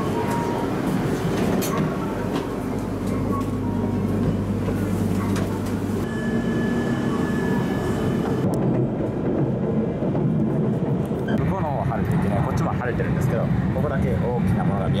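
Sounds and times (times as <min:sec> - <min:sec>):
platform noise: 0:00.0 - 0:08.5
high-pitched tone: 0:06.0 - 0:08.5.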